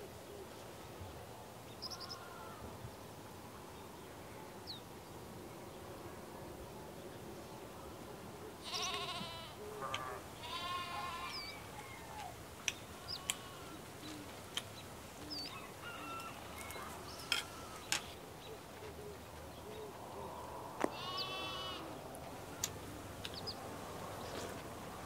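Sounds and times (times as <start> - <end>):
livestock bleating: 2.0 - 2.6, 8.6 - 11.6, 13.0 - 13.8, 16.3 - 18.2, 20.9 - 22.0.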